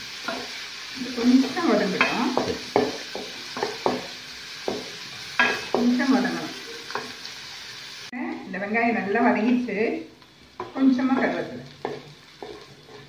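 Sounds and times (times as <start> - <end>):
onion sizzling in oil: 0.0 - 13.0
spatula scraping pan bottom: 11.2 - 13.0.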